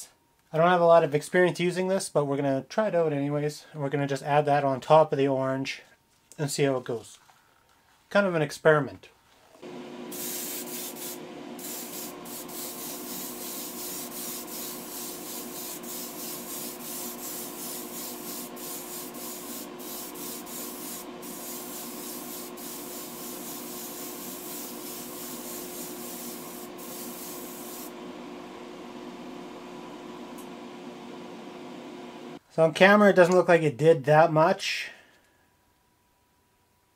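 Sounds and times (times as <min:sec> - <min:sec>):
extractor fan hum: 0:09.6 - 0:32.4
airbrush spraying hiss: 0:10.1 - 0:28.0.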